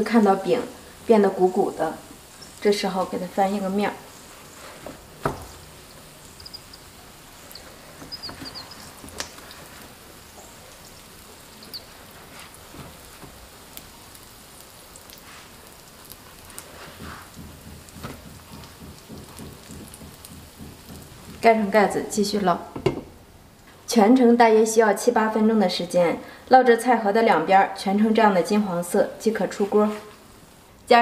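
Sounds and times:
food sizzling in hot oil: 0:00.0 - 0:23.6
light knocks on pan: 0:17.0 - 0:21.4, 0:22.8 - 0:23.1.

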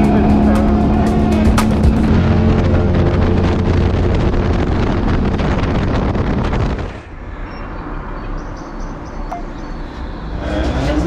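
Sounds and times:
motorcycle engine running: 0:00.0 - 0:06.8
wind noise on microphone: 0:00.0 - 0:07.8.

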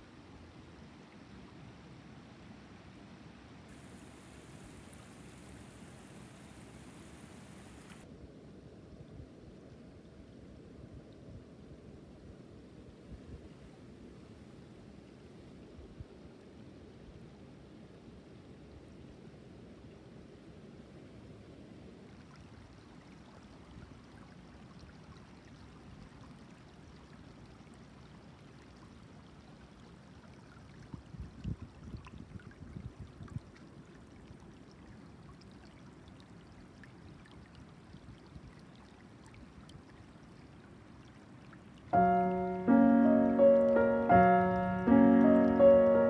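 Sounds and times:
stream trickling over stones: 0:21.9 - 0:42.7
piano music: 0:42.0 - 0:46.0.

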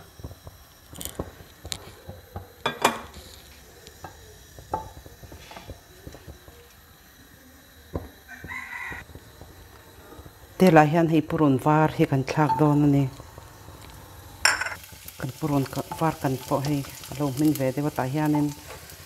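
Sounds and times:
rooster crowing: 0:08.2 - 0:09.1.

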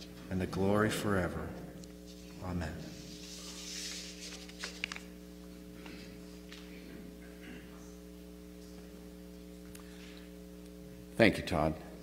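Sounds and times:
electrical mains hum: 0:00.0 - 0:12.0
paper rustling: 0:03.0 - 0:05.2.

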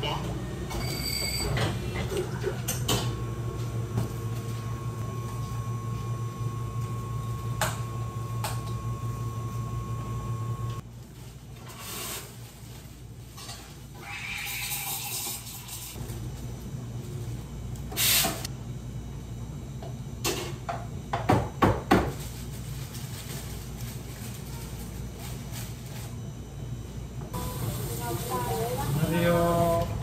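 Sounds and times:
machine motor humming: 0:03.1 - 0:10.8.

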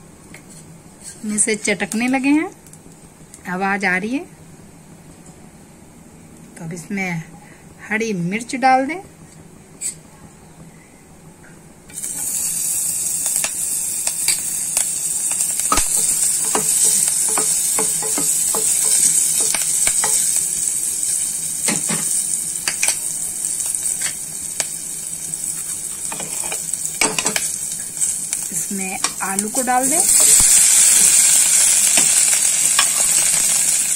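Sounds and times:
spices sizzling in butter: 0:11.9 - 0:33.9.

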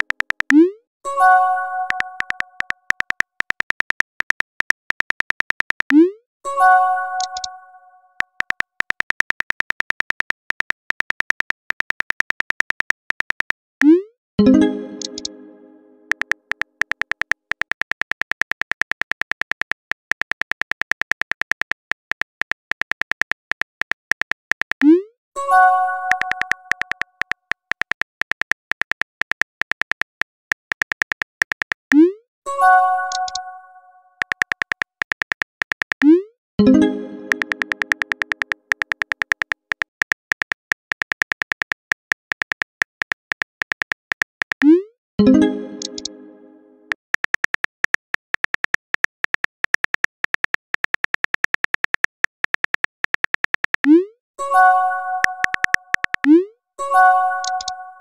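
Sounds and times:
smartphone keyboard clicks: 0:00.0 - 0:00.6, 0:01.9 - 0:06.0, 0:07.2 - 0:07.5, 0:08.2 - 0:13.7, 0:15.0 - 0:15.3, 0:16.1 - 0:24.9, 0:26.1 - 0:32.0, 0:34.2 - 0:36.1, 0:37.3 - 0:44.7, 0:45.8 - 0:46.1, 0:46.9 - 0:54.0, 0:55.2 - 0:56.4.

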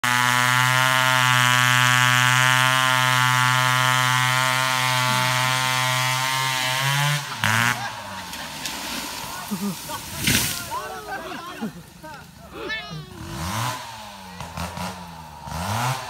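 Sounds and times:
chainsaw cutting into tree trunk: 0:00.0 - 0:10.7, 0:13.2 - 0:16.0.

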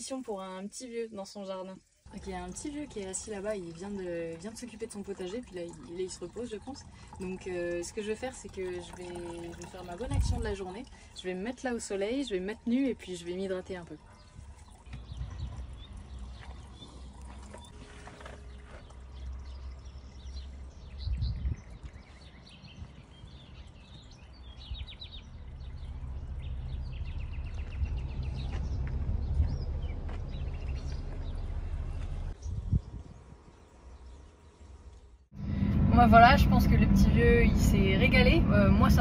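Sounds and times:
small birds chirping: 0:03.3 - 0:35.3
steady low rumble: 0:24.3 - 0:33.4, 0:35.3 - 0:39.0.

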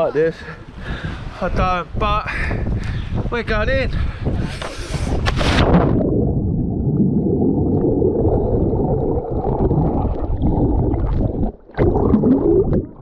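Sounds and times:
underwater rushing and gurgling: 0:05.4 - 0:13.0.

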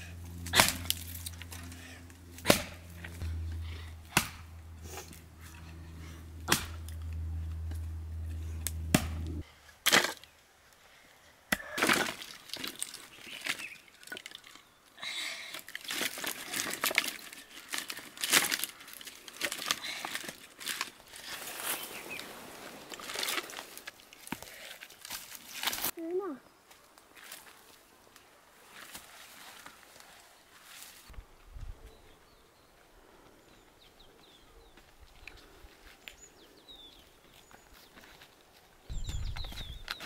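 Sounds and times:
low hum: 0:00.0 - 0:09.4
axe splitting wood: 0:00.5 - 0:01.0, 0:02.4 - 0:02.8, 0:06.5 - 0:06.8, 0:08.7 - 0:09.2.

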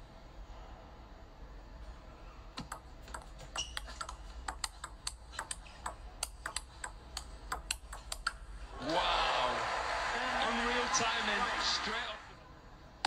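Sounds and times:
table tennis ball clicking: 0:02.6 - 0:08.5.

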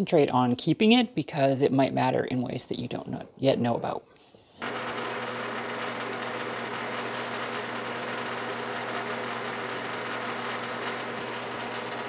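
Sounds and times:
metal lathe humming: 0:04.6 - 0:12.0.

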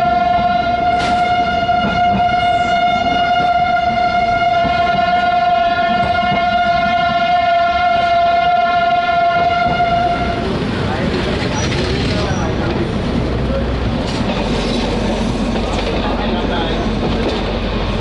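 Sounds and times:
train horn long steady note: 0:00.0 - 0:10.4
train rumbling on track: 0:00.0 - 0:18.0.

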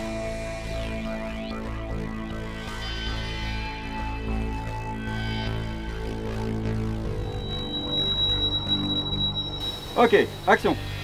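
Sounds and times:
ambient synthesizer chords: 0:00.0 - 0:11.0
thin high held tone: 0:07.2 - 0:11.0.

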